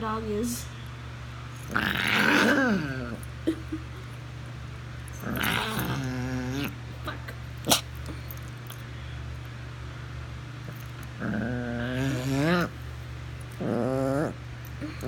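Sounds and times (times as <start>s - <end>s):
steady low hum: 0.0s - 15.0s
small dog growling: 1.6s - 3.6s, 5.1s - 6.8s, 7.6s - 8.2s, 10.7s - 12.8s, 13.5s - 15.0s.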